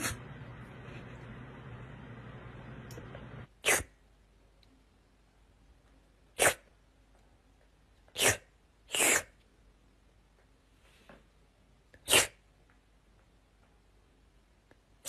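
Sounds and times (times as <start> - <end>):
cat sneezing: 0.0 - 0.3, 3.6 - 4.0, 6.4 - 6.7, 8.2 - 9.4, 12.0 - 12.4.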